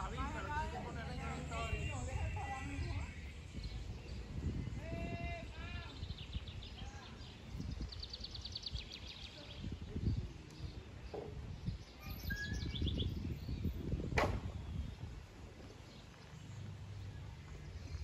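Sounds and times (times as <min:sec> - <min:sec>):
low outdoor rumble: 0:00.0 - 0:05.9, 0:13.9 - 0:18.0
songbirds trilling: 0:00.0 - 0:18.0.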